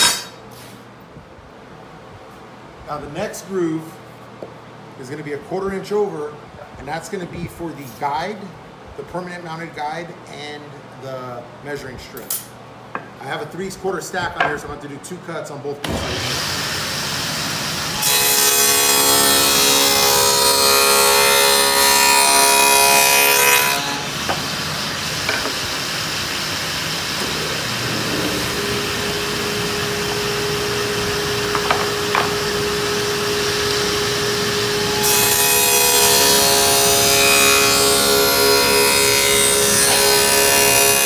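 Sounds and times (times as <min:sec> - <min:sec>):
table saw cutting wood: 0:00.0 - 0:00.4, 0:15.9 - 0:41.0
table saw running unloaded: 0:18.0 - 0:41.0.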